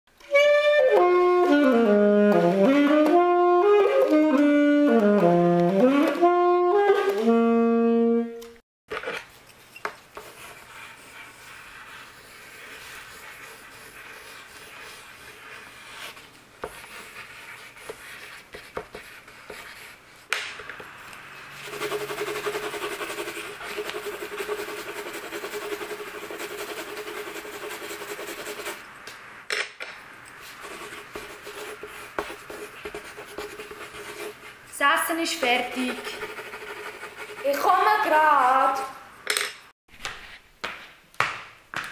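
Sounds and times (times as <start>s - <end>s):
coloured pencils scratching on paper: 8.9s - 28.8s, 30.4s - 38.8s.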